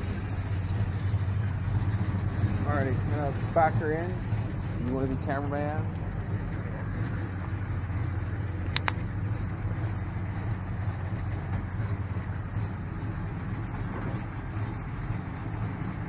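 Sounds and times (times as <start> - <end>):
car engine rumbling: 0.0 - 16.0
short sharp clicks: 8.6 - 9.0.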